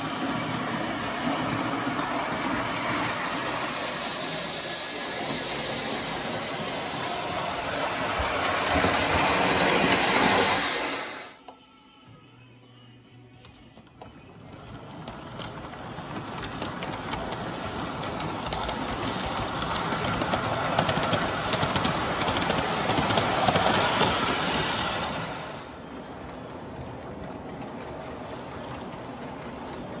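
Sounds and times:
model train wheels clicking on track: 0.0s - 11.3s, 14.6s - 30.0s.

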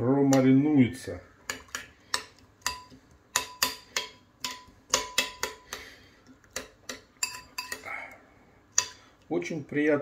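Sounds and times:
spoon clinking in ceramic bowl: 1.5s - 5.7s, 6.6s - 7.9s.

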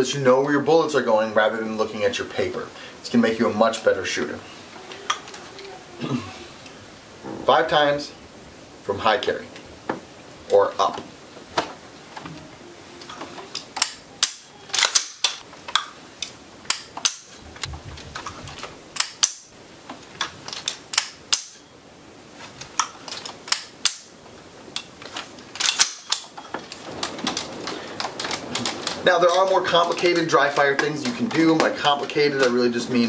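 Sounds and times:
rifle handling: 13.0s - 17.3s, 18.2s - 19.4s, 24.8s - 32.6s
rifle dry-fire clicks: 13.6s - 17.3s, 19.0s - 19.4s, 20.2s - 21.6s, 22.7s - 24.1s, 25.5s - 32.6s.

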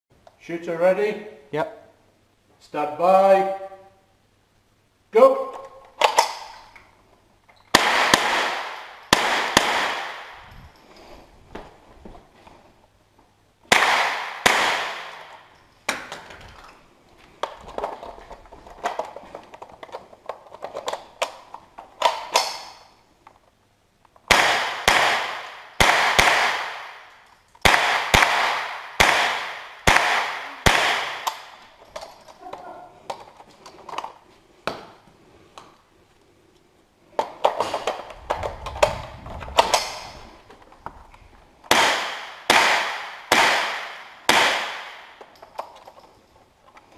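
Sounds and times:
rifle shots echoing indoors: 7.7s - 10.5s, 13.6s - 16.2s, 24.3s - 31.8s, 41.6s - 45.3s.

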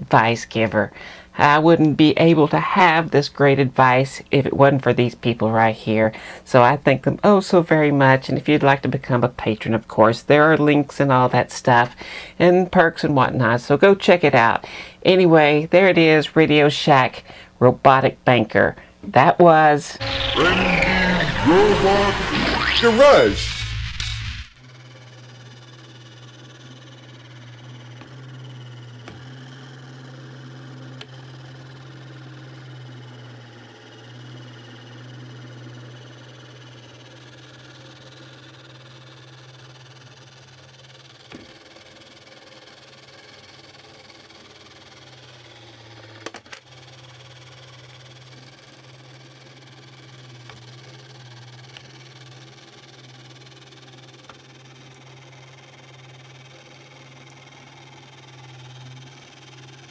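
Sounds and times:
toy robot arm motor humming: 0.2s - 17.4s, 19.6s - 59.9s.

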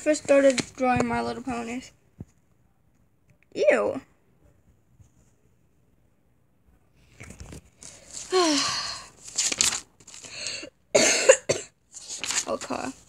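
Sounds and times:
paper pages rustling: 0.0s - 1.7s, 7.0s - 10.5s, 11.9s - 13.0s.

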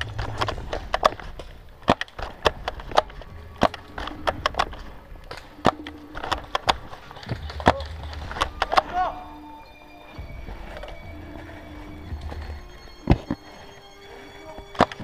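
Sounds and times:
twigs snapping: 0.0s - 9.2s.

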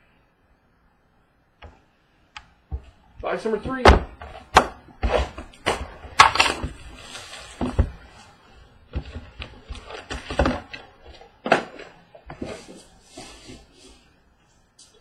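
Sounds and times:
card packs rustling: 5.2s - 14.0s.

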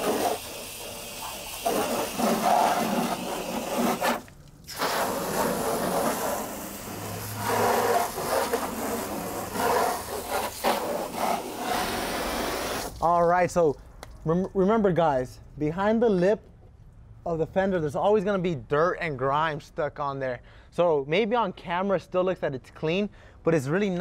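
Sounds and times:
water spray washing truck undercarriage: 0.0s - 13.8s.

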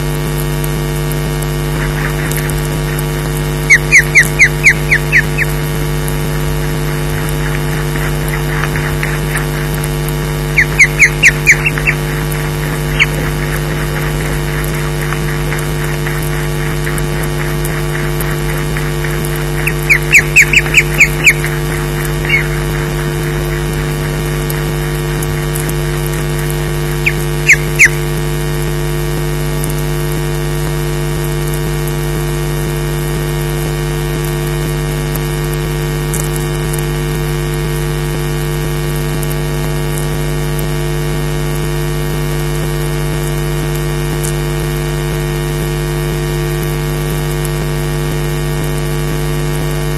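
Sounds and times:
electrical hum: 0.0s - 49.9s
osprey calling: 1.6s - 28.2s.

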